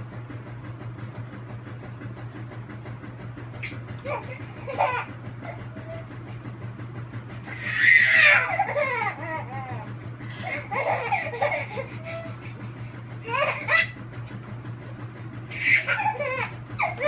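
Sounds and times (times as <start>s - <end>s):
steady low hum: 0.0s - 17.0s
baby laughing: 3.6s - 6.1s, 7.5s - 12.6s, 13.2s - 14.0s, 15.5s - 17.0s.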